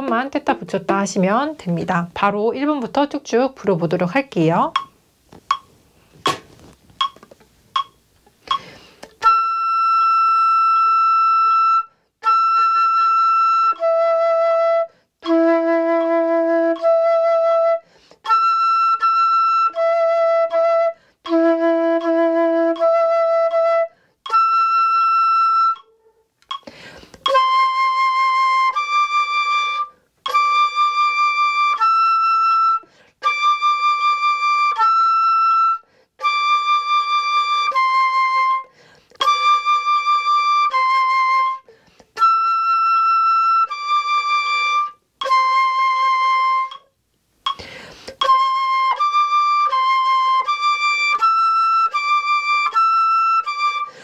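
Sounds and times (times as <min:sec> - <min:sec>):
flutist breathing: 0:08.4 - 0:09.2, 0:17.8 - 0:18.3, 0:21.0 - 0:21.3, 0:23.9 - 0:24.3, 0:26.5 - 0:27.3, 0:32.8 - 0:33.2, 0:35.8 - 0:36.2, 0:38.7 - 0:39.2, 0:41.6 - 0:42.2, 0:47.5 - 0:48.2
solo flute long notes: 0:09.2 - 0:26.3, 0:27.3 - 0:46.9, 0:48.2 - 0:54.0.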